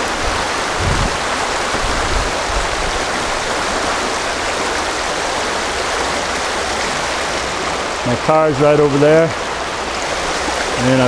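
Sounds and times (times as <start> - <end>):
low rumbles: 0.0 - 3.5
river rushing over rocks: 0.0 - 11.0.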